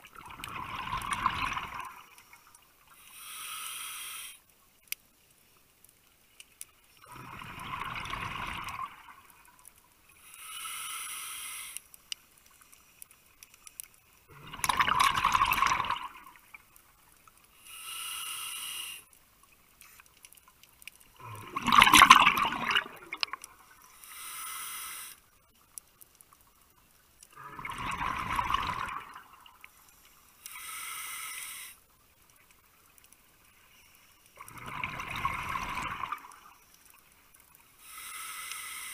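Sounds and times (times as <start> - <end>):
rush of exhaled bubbles: 0.0 - 2.1, 7.0 - 9.3, 14.3 - 16.4, 21.2 - 23.5, 27.4 - 29.6, 34.4 - 36.4
regulator hissing inhale: 2.9 - 4.4, 10.2 - 12.0, 17.6 - 19.1, 23.8 - 25.2, 30.4 - 31.8, 37.8 - 38.9.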